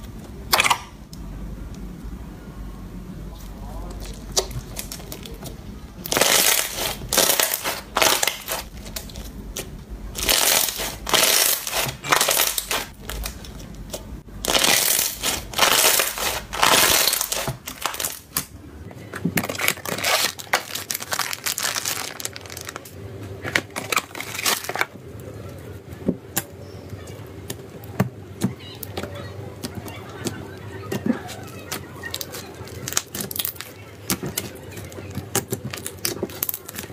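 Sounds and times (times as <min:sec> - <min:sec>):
slime crackling and popping: 0:00.5 - 0:01.0, 0:03.9 - 0:18.5, 0:19.4 - 0:24.9, 0:31.5 - 0:36.9
slime clicks and squishes: 0:28.8 - 0:36.9.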